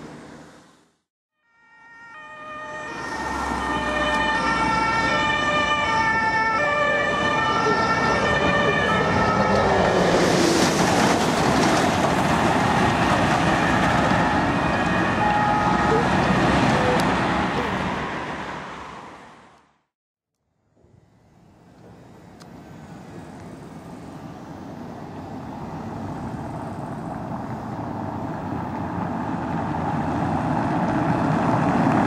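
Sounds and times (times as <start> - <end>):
passing traffic: 0.0 - 19.9, 20.8 - 32.0
two-tone siren: 1.3 - 10.1, 13.4 - 17.2.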